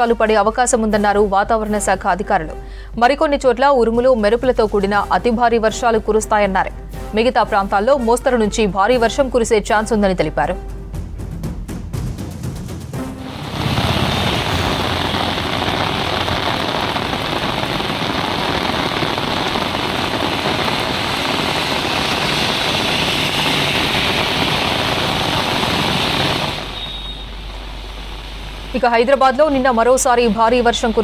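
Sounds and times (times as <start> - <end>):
vehicles driving through rain: 13.2 - 31.0
heavy rain on a road: 13.3 - 28.8.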